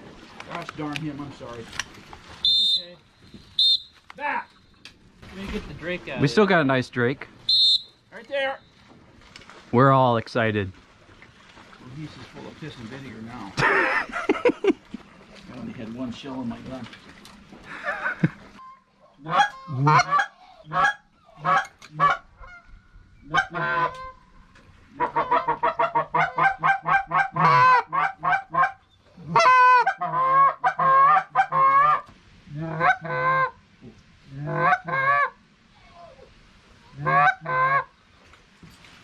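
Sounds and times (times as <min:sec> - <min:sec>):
geese honking: 0:18.6 - 0:24.2, 0:24.9 - 0:33.6, 0:34.4 - 0:35.4, 0:36.9 - 0:37.9.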